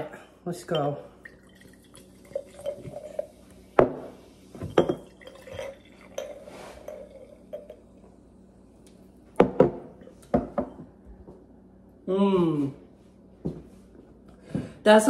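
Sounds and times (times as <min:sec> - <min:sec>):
cider glugging and splashing: 0:00.7 - 0:03.5, 0:04.6 - 0:08.0.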